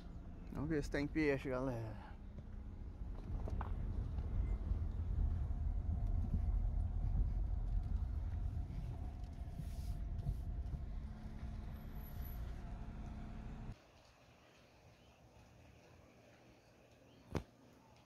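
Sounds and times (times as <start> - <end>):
car engine and road rumble: 0.0 - 13.8.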